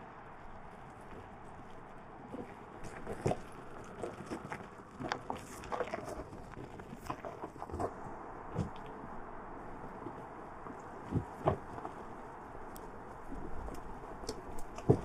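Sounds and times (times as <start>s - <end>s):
low steady hiss: 0.0s - 15.0s
tyres crunching over gravel: 0.0s - 15.0s.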